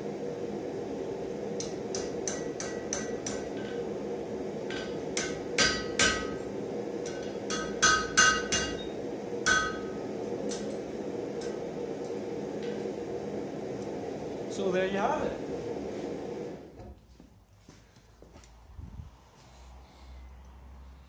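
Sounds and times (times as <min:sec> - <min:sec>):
steady hum: 0:00.0 - 0:17.0
hammer striking hot steel: 0:01.6 - 0:04.0, 0:04.6 - 0:11.7.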